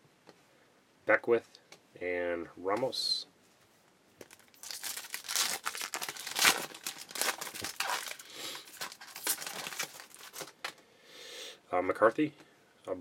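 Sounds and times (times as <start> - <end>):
foil pack crackling: 4.2 - 10.8.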